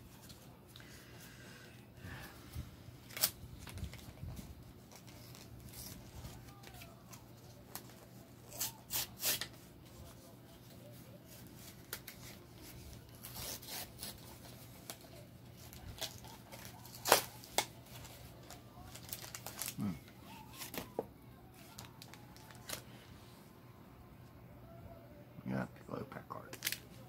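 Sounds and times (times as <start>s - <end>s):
cards and wrappers rustling: 2.2s - 23.1s, 26.4s - 27.0s.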